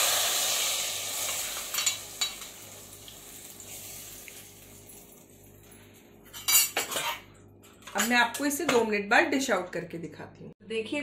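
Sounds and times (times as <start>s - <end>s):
hot oil sizzling: 0.0s - 5.6s.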